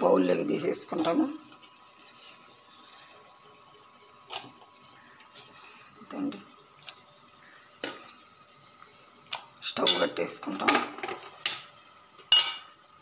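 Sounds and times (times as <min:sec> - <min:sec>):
spoon clinking and scraping metal bowl: 0:12.3 - 0:12.7.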